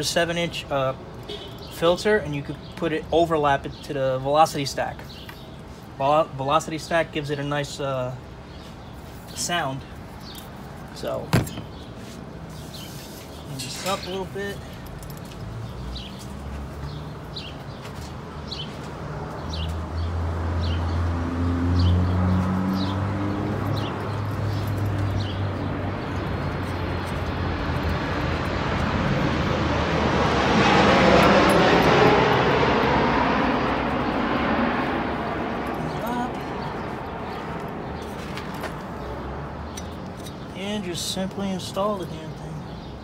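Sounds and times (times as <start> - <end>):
passing engine rushing: 20.0 - 37.3
bird chirping: 35.8 - 43.0.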